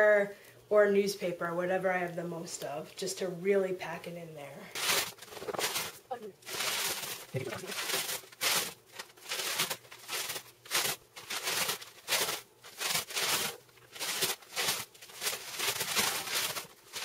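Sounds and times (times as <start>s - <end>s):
newspaper crumpling: 4.8s - 17.0s.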